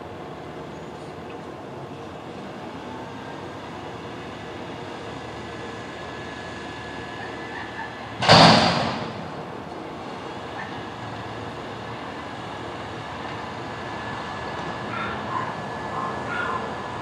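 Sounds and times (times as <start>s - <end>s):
garbage truck engine running: 0.0s - 17.0s
dumpster crash: 8.2s - 9.4s.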